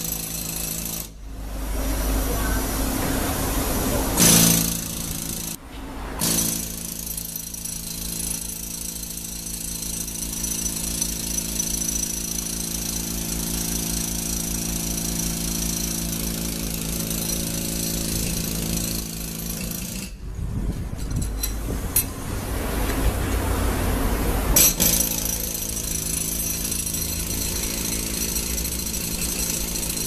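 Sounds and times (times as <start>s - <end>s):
power tool hammering concrete: 0.0s - 1.2s, 4.1s - 5.6s, 6.2s - 20.2s, 24.6s - 30.0s.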